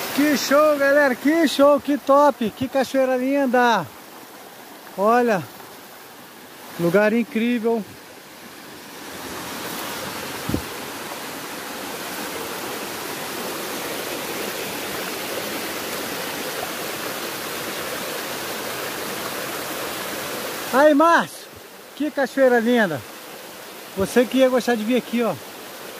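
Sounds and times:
waterfall rushing: 0:00.0 - 0:25.9
low thump: 0:10.4 - 0:10.8.

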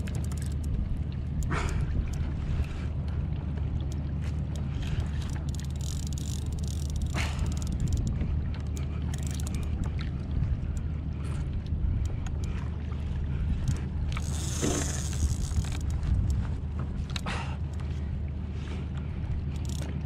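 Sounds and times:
water sloshing against kayak: 0:00.0 - 0:20.0
wind rumbling on microphone: 0:00.0 - 0:20.0.

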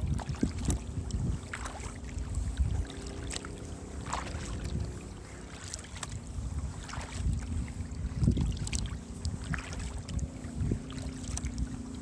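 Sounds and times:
kayak paddle splashing water: 0:00.0 - 0:12.0.

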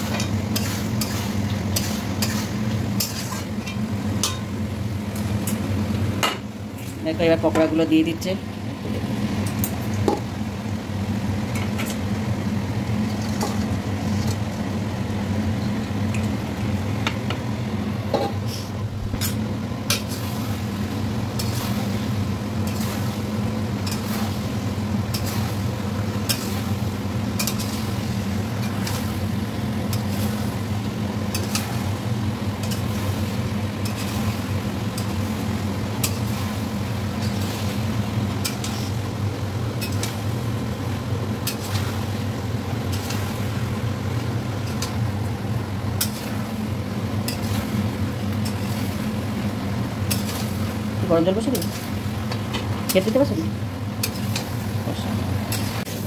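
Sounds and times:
metal spatula scraping a pan: 0:00.0 - 0:03.5.

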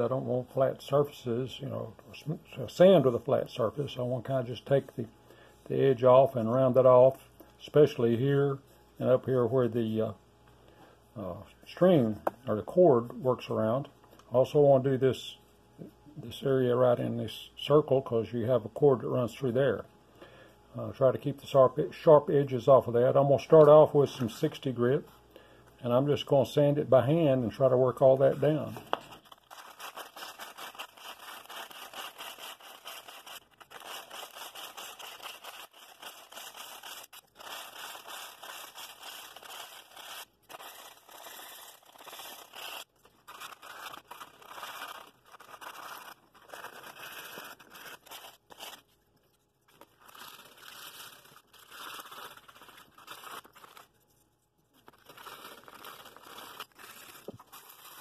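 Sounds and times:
sandpaper rasping on wood: 0:29.7 - 0:42.9.

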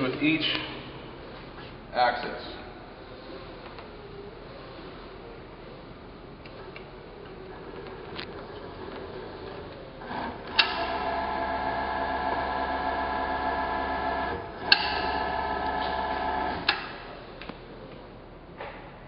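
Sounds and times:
servo motor whine: 0:03.0 - 0:17.0.

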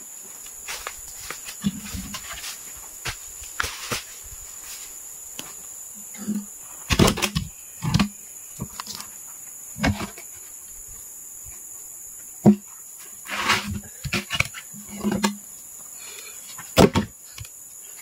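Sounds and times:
high-pitched insect drone: 0:00.0 - 0:18.0
footsteps and knocks on log: 0:00.3 - 0:05.6.

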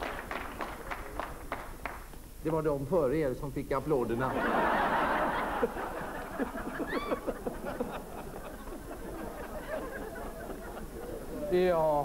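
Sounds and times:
audience laughter: 0:04.2 - 0:11.5
audience murmuring: 0:05.9 - 0:12.0.

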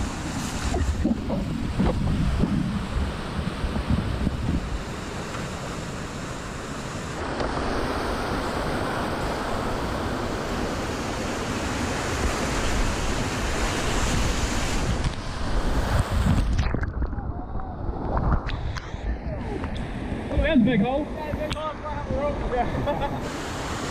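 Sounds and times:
wind buffeting microphone: 0:00.0 - 0:05.0, 0:12.0 - 0:23.3.

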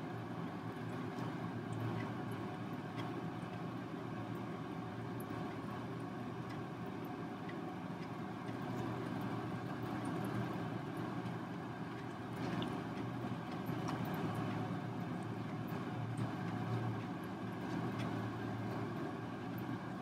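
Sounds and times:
low motor hum: 0:00.0 - 0:20.0
faint light ticks: 0:02.9 - 0:03.6, 0:06.4 - 0:06.7, 0:07.4 - 0:08.9, 0:16.2 - 0:18.2.

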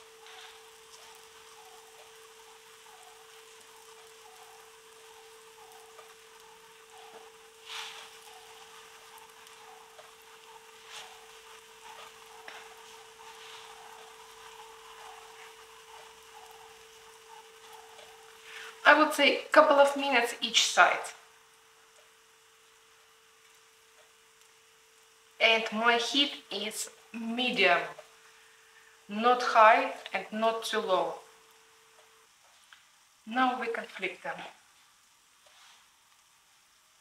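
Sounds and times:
oil spitting and crackling: 0:00.0 - 0:19.0
batter sizzling in frying pan: 0:00.0 - 0:37.0.

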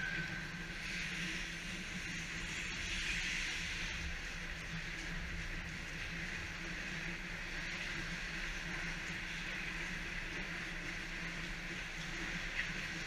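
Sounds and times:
ice arena hum and hiss: 0:00.0 - 0:13.0.

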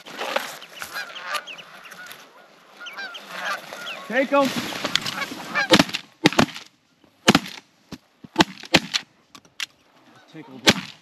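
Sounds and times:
geese honking: 0:00.2 - 0:05.9, 0:10.0 - 0:10.7
shotgun blasts: 0:10.6 - 0:11.0.

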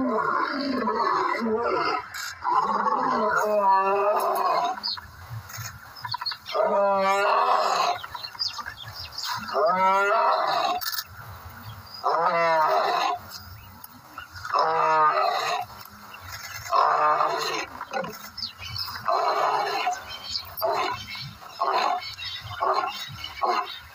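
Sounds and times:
lion roaring: 0:00.0 - 0:04.8, 0:06.5 - 0:08.0, 0:12.0 - 0:13.2, 0:16.6 - 0:18.2.

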